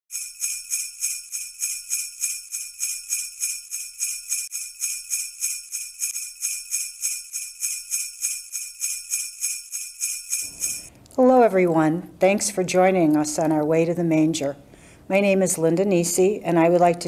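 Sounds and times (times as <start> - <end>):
sleigh bells shaken: 0.1 - 10.9.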